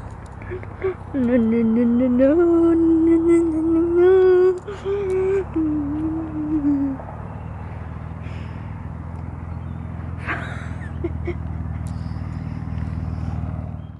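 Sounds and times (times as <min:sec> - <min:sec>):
car engine low rumble: 0:00.0 - 0:13.9.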